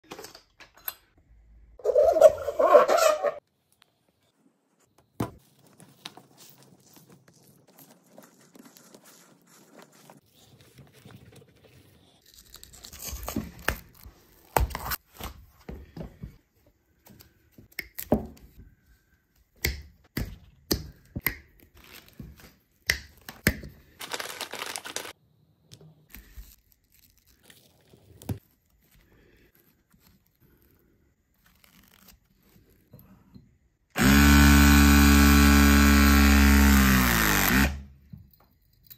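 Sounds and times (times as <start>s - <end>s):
rubber sheath tearing: 31.4s - 32.7s.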